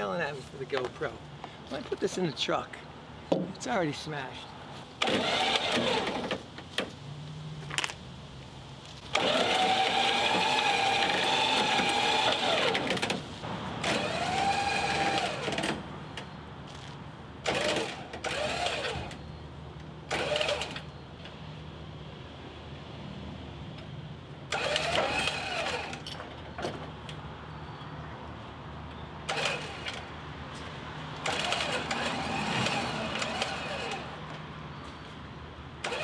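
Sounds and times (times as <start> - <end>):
electric winch motor whining: 5.0 - 6.3, 9.1 - 13.1, 13.8 - 15.8, 17.4 - 19.2, 20.1 - 20.9, 24.5 - 26.1, 29.3 - 30.0, 31.2 - 34.2.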